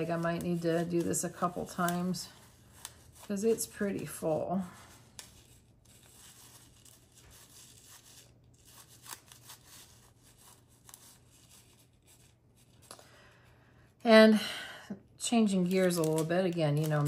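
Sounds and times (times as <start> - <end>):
plastic bag rustling: 0.0 - 12.9, 15.5 - 17.0.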